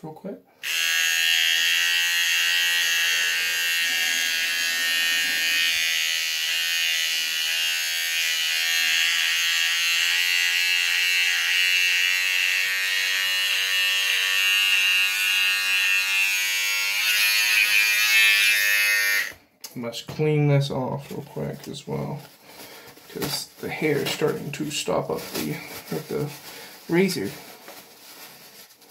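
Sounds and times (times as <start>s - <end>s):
electric beard trimmer buzzing: 0.6s - 19.4s.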